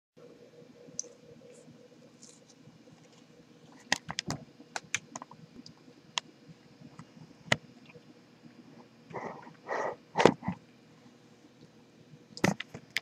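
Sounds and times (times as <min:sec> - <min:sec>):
computer handling clicks and knocks: 0:12.4 - 0:13.0.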